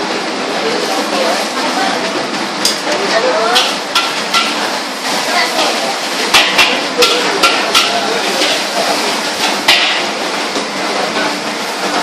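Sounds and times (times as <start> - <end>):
metal spatula clanking on wok: 3.5 - 4.6, 6.3 - 8.8, 9.4 - 10.2.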